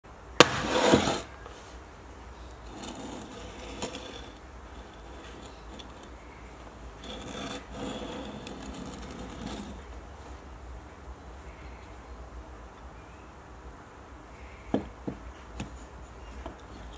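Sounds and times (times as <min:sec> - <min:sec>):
plane scraping on bench top: 0:00.4 - 0:01.3, 0:02.6 - 0:06.2, 0:06.9 - 0:09.9.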